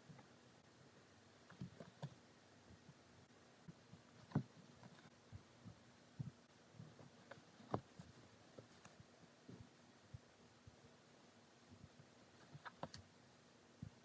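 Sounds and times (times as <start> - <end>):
fingers tapping and rubbing linen: 3.7 - 9.7, 11.8 - 13.1.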